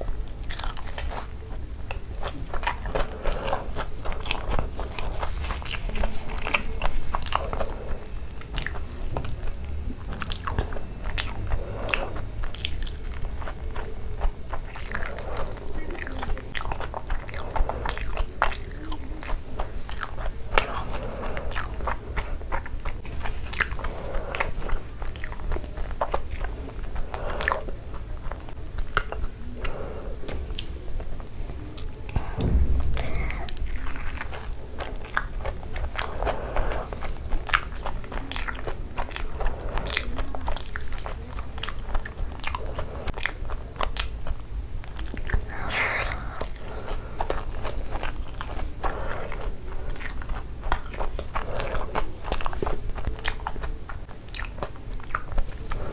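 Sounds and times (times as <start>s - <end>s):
chewing and crunching: 0.0s - 55.9s
wet mouth sounds: 0.0s - 55.9s
dull low thump: 32.2s - 34.8s.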